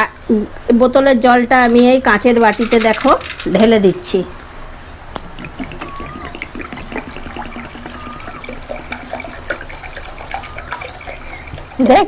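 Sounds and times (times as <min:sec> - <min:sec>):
water pouring into a glass bowl: 0:05.3 - 0:12.0.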